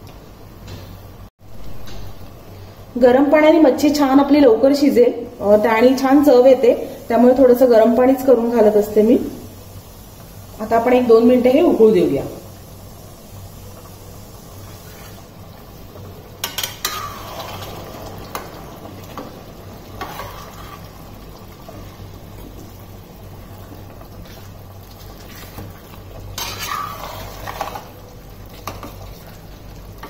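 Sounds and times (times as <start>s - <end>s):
curry bubbling and sizzling: 3.7s - 30.0s
ladle scraping pan: 16.4s - 18.6s, 19.9s - 21.1s, 26.4s - 28.0s.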